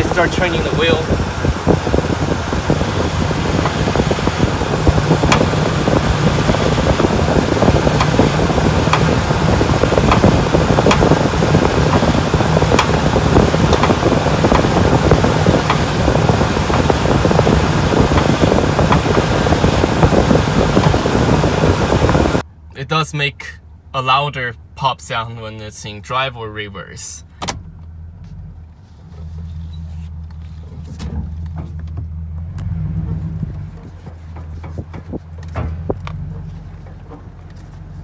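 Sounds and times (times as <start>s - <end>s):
truck engine idling: 0.0s - 22.7s
sharp pops from steering: 3.4s - 21.1s.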